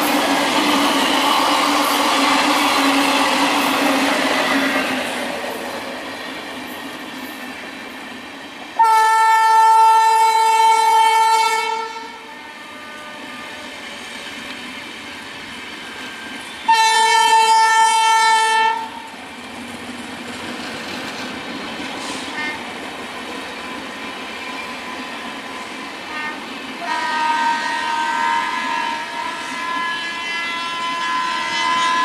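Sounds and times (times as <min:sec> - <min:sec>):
passing electric train: 0:00.0 - 0:32.0
train horn blasts: 0:08.8 - 0:14.1, 0:16.7 - 0:19.1, 0:22.3 - 0:22.7, 0:26.0 - 0:32.0.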